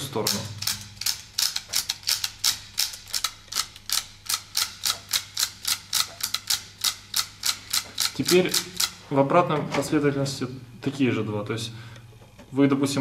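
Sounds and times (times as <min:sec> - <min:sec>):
wooden ratchet clicking: 0:00.0 - 0:09.0.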